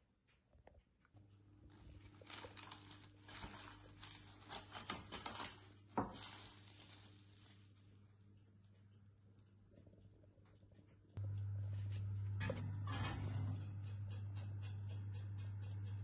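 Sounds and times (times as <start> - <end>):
cling film crinkling: 1.6 - 8.1.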